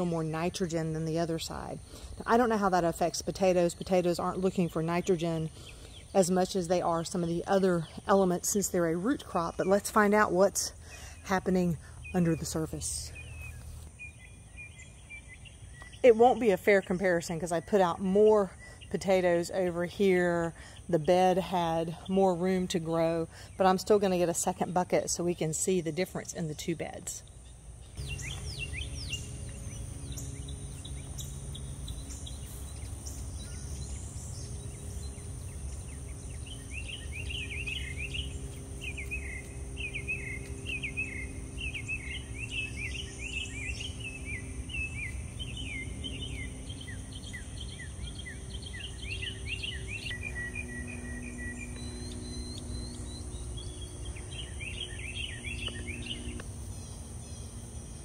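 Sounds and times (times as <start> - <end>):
bird chirping: 0.0 - 22.8, 26.2 - 58.0
faint steady hum: 0.0 - 58.0
high insect drone: 28.0 - 58.0.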